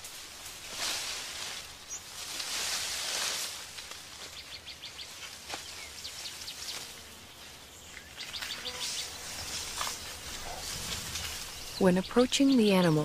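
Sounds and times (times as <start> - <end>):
steady background hiss: 0.0 - 13.0
birds chirping: 1.7 - 2.2, 4.1 - 13.0.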